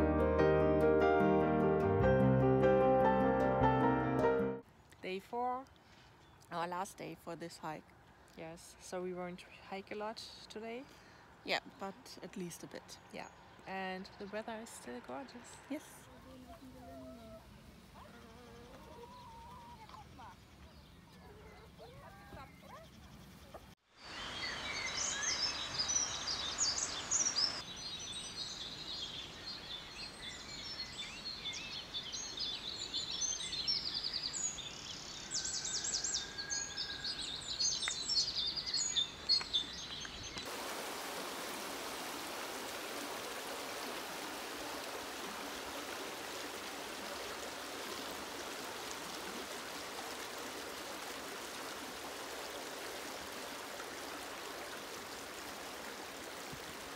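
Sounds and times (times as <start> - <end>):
songbirds singing: 8.4 - 40.5
stream running over stones: 23.9 - 56.9.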